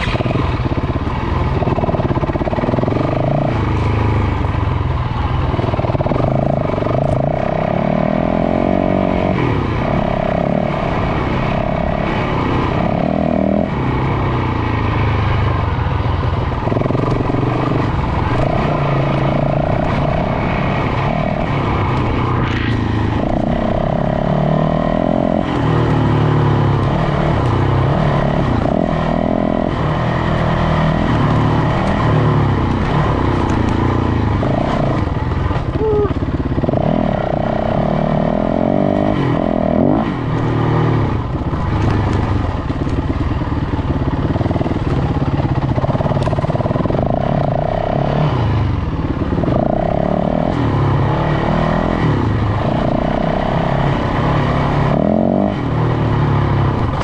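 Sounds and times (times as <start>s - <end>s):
dirt bike engine revving: 0.0s - 4.2s, 16.5s - 57.0s.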